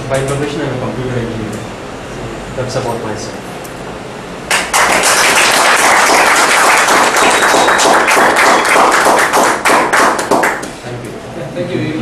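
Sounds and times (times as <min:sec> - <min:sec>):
audience applauding: 0:04.5 - 0:10.7.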